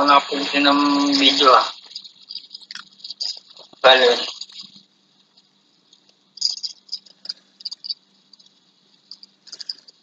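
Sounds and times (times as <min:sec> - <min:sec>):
pizza being chewed: 0:01.8 - 0:05.4.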